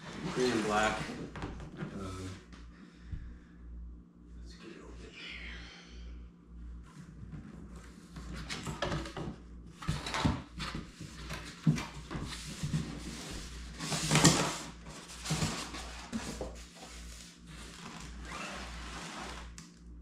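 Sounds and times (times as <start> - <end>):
cardboard box rustling and scraping: 9.8 - 19.5.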